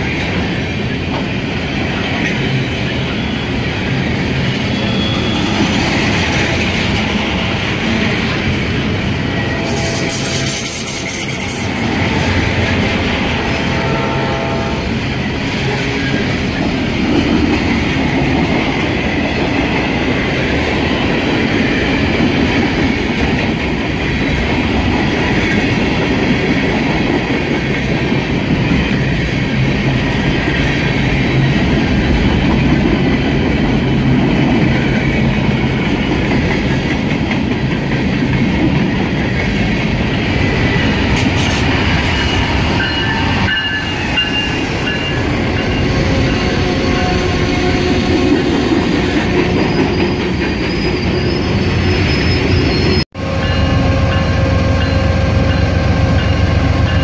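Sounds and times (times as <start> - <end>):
train wheels rolling on rails: 0.0 - 57.0
train horn chord: 13.3 - 15.0.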